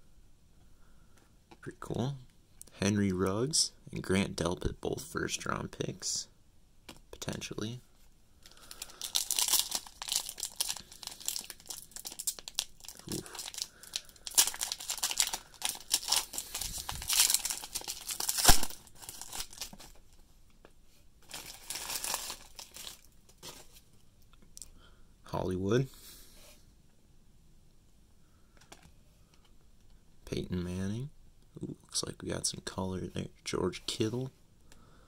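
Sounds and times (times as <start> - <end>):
foil wrapper crinkling and tearing: 8.5 - 20.0, 21.2 - 23.8.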